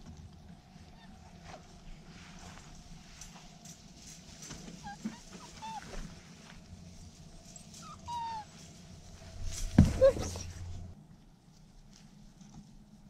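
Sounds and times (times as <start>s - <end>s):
puppies whimpering: 4.8s - 6.0s, 7.7s - 8.6s.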